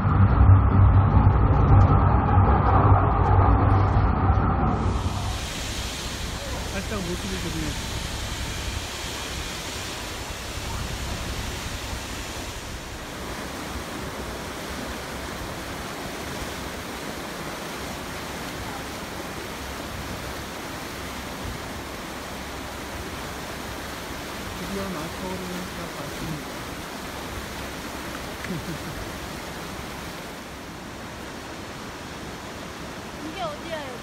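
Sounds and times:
low rumble: 0.0 - 16.7
river rushing through channel: 4.7 - 34.0.

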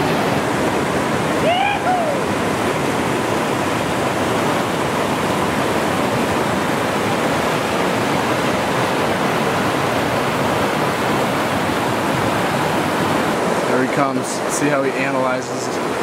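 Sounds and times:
whitewater rapids rushing: 0.0 - 16.0.

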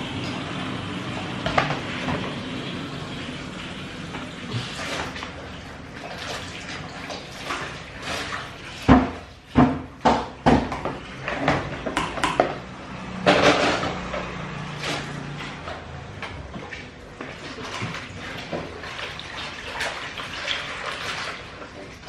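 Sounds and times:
water splashing in a bowl: 4.1 - 13.3, 14.0 - 22.0.

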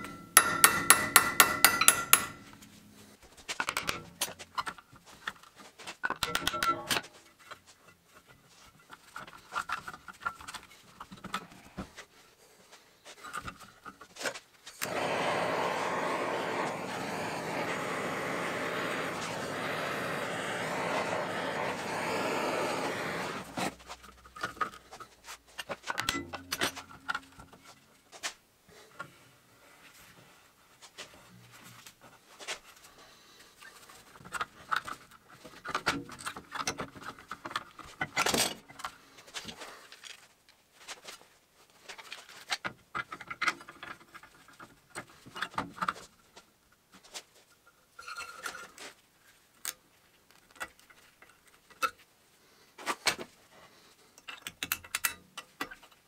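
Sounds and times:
air blow gun hissing: 14.8 - 23.7.

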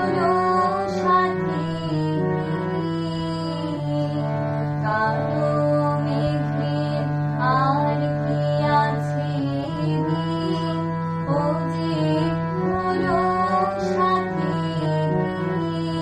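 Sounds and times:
girl singing: 0.0 - 16.0
harmonium chords: 0.0 - 16.0.

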